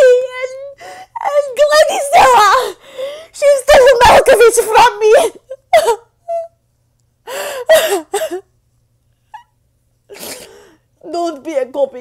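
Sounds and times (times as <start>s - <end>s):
woman sobbing and gasping: 0.0s - 6.6s, 7.2s - 8.5s.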